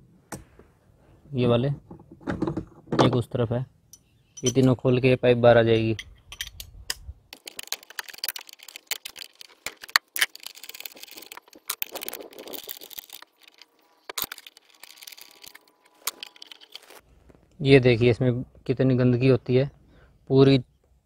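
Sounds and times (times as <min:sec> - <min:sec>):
metal pipe rattling: 0:03.9 - 0:04.8.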